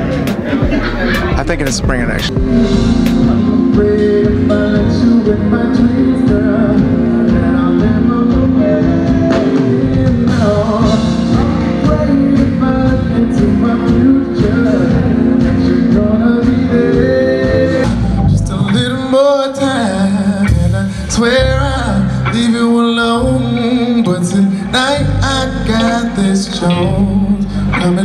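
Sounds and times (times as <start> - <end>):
steady drum beat: 0.0 - 18.1
bass: 0.0 - 28.0
guitar: 0.0 - 28.0
man singing: 0.7 - 28.0.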